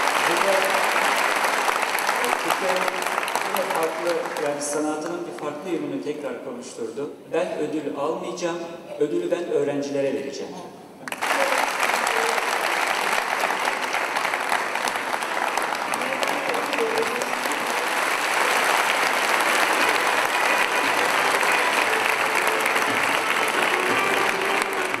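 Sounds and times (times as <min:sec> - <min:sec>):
large audience applauding: 0:00.0 - 0:05.6, 0:11.0 - 0:25.0.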